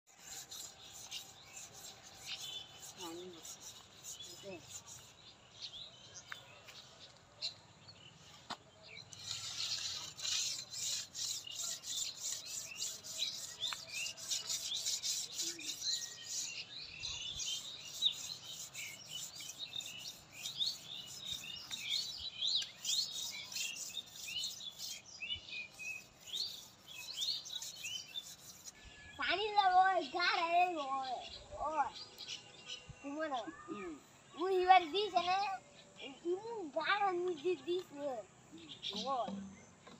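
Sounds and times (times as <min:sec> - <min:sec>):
knife scraping bark: 0:00.1 - 0:05.2, 0:09.1 - 0:16.7, 0:17.3 - 0:28.8
small birds chirping: 0:00.1 - 0:39.9.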